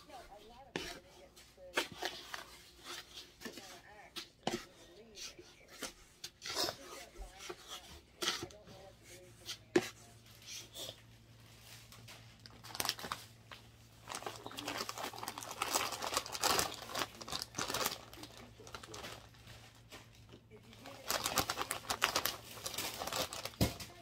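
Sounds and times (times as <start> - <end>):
plastic bag crinkling: 11.4 - 24.0.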